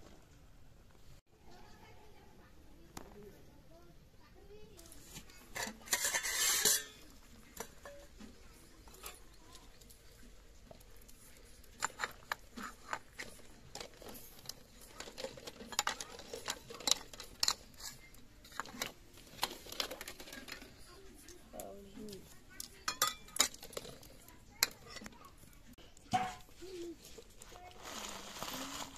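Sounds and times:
steel plate scraping pot: 4.9s - 20.8s, 22.8s - 25.1s
ladle clinking against steel pot: 5.6s - 8.2s, 22.8s - 24.0s.

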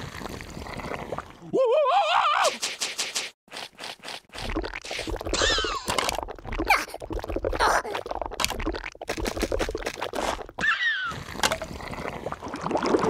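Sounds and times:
cartoon clicks and scrapes: 2.4s - 6.3s, 7.6s - 10.6s.

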